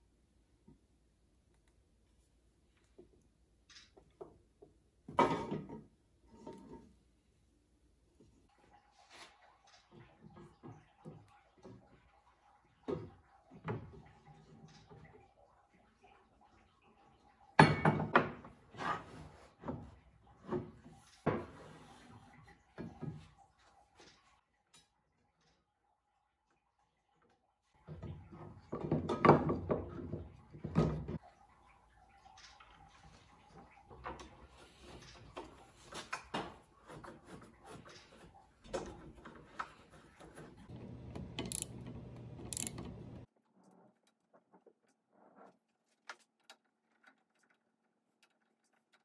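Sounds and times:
wheels rolling along a rail: 0:40.7 - 0:43.3
metal frame parts clicking and knocking: 0:40.9 - 0:43.3.

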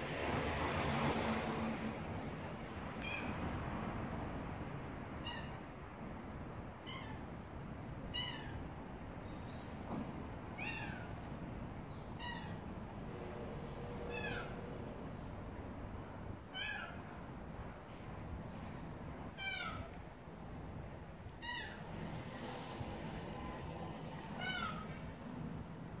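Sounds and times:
cat meowing: 0:05.2 - 0:05.6, 0:08.1 - 0:08.6, 0:10.6 - 0:11.2, 0:14.0 - 0:14.7, 0:23.4 - 0:25.0.

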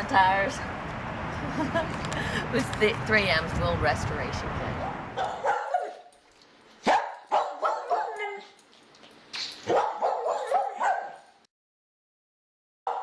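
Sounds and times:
dog barking and yipping: 0:05.2 - 0:06.2, 0:06.8 - 0:08.6, 0:09.6 - 0:11.3.

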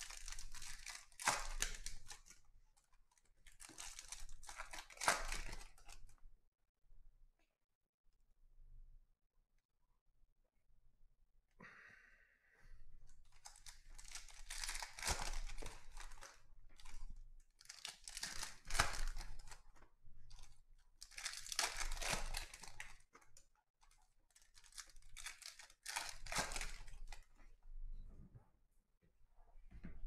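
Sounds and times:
foil wrappers tearing and crinkling: 0:00.0 - 0:02.4, 0:03.5 - 0:06.0, 0:13.3 - 0:17.0, 0:17.6 - 0:19.6, 0:20.3 - 0:23.0, 0:24.3 - 0:27.3.

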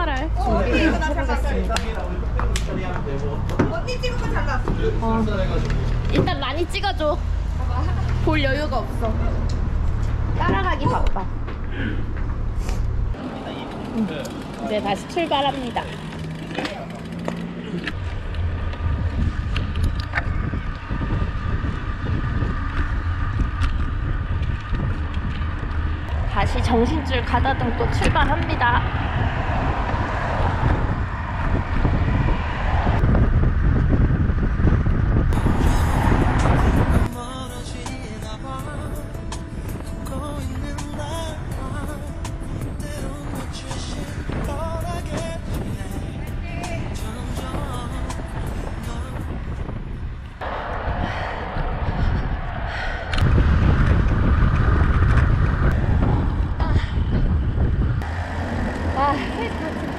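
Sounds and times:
wind buffeting microphone: 0:00.0 - 0:16.4, 0:17.9 - 0:59.9.

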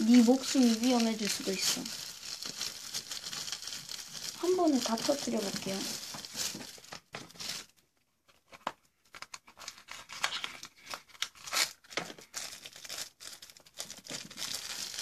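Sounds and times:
paper and plastic crinkling: 0:00.0 - 0:15.0.

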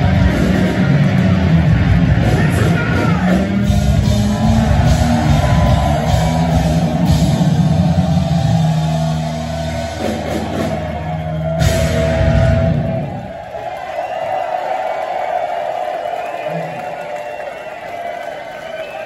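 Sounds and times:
bass guitar: 0:00.0 - 0:13.4
drum kit: 0:00.0 - 0:13.4
electric guitars: 0:00.0 - 0:13.4.

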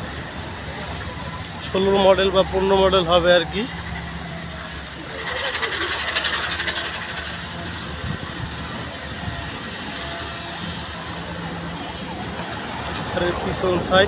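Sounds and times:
traffic engine hum: 0:00.0 - 0:14.0
hissing rattle: 0:03.5 - 0:10.9.

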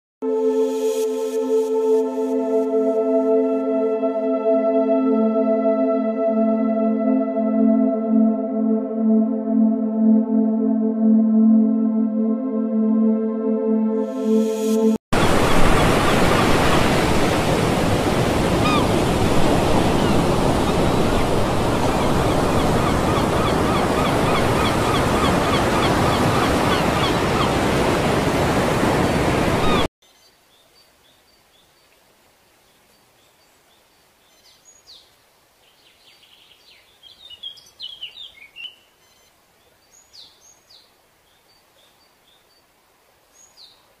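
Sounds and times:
ocean surf rushing: 0:14.0 - 0:29.9.

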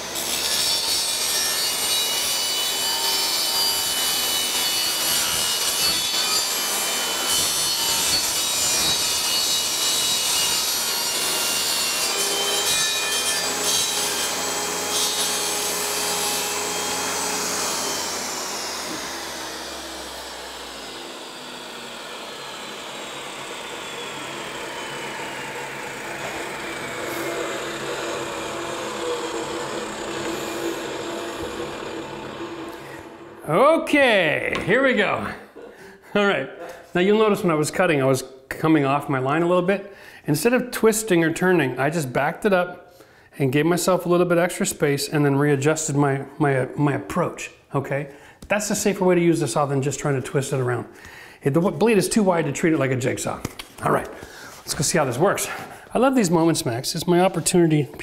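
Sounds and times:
table saw cutting wood: 0:00.0 - 0:34.4
saw blade coasting down whine: 0:15.7 - 0:33.6.

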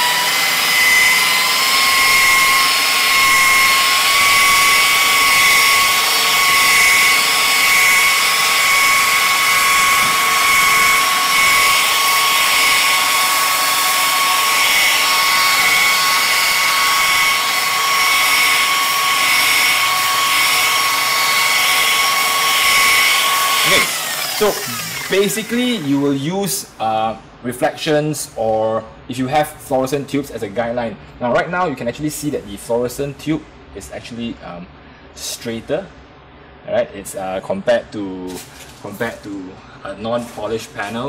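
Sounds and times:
electric polisher whining: 0:00.0 - 0:26.0.

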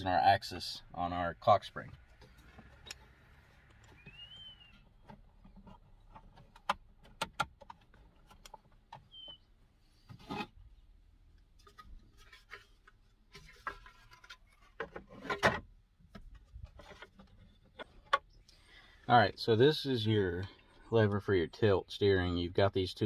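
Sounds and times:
plastic clatter: 0:11.6 - 0:18.3.

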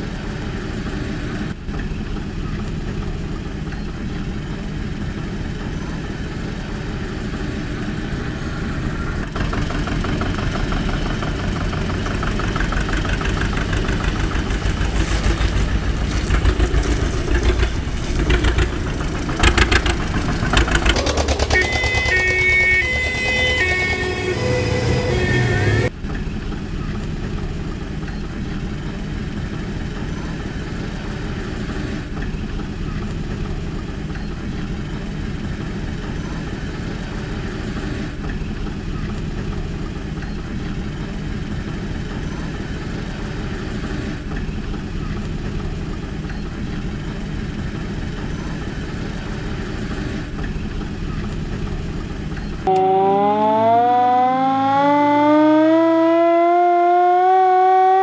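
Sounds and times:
van engine idling: 0:00.0 - 0:52.7
hand-cranked siren wailing: 0:20.6 - 0:25.9, 0:52.7 - 0:58.0.

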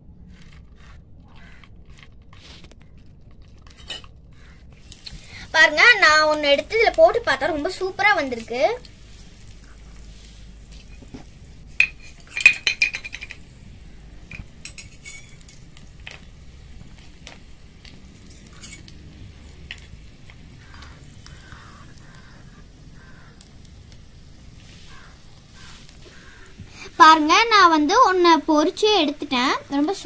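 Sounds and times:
oil sizzling: 0:03.7 - 0:30.0
metal spoon clinking on pan: 0:11.8 - 0:13.4, 0:14.6 - 0:15.6, 0:18.4 - 0:18.9.

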